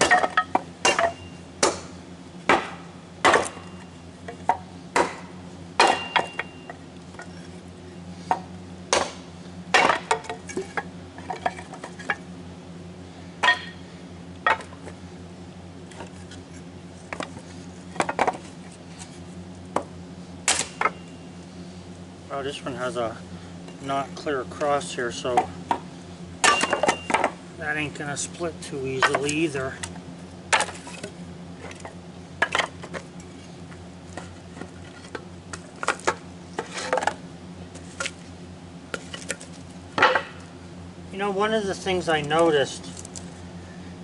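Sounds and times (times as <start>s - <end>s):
axe chopping wood: 0.0s - 3.8s, 4.4s - 6.6s, 8.3s - 11.5s, 13.4s - 13.8s, 19.7s - 21.0s, 26.4s - 27.4s, 29.0s - 33.0s
low hum: 0.0s - 44.0s.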